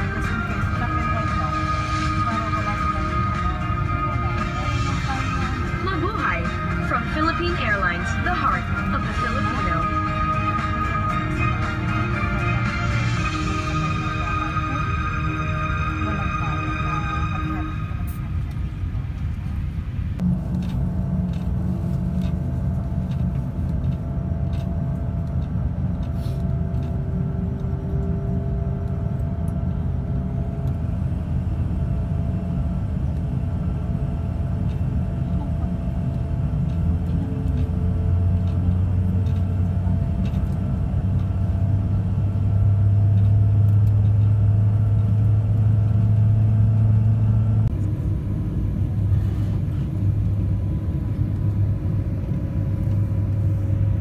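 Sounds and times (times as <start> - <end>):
jet engine rumble: 0.0 - 54.0.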